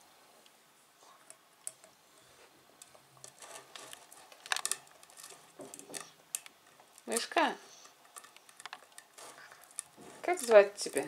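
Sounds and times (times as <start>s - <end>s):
fingers picking food from metal pot: 2.8s - 11.0s
scraping in metal pot: 3.2s - 6.3s, 7.0s - 11.0s.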